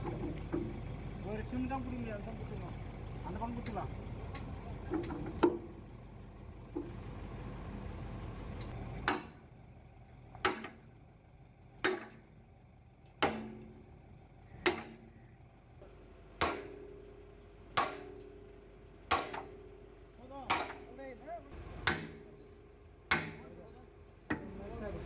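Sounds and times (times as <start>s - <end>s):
hammer striking steel pin: 10.4s - 10.8s, 11.8s - 12.3s, 13.2s - 13.7s, 14.6s - 15.0s, 16.4s - 16.9s, 17.8s - 18.4s, 19.1s - 19.6s, 20.5s - 20.9s, 21.8s - 22.2s, 23.1s - 23.5s.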